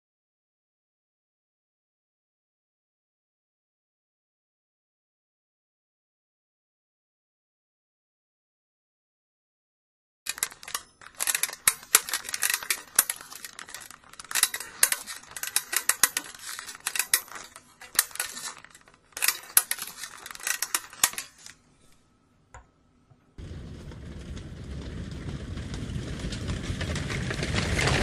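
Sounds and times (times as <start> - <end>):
low rumble: 23.4 - 27.8.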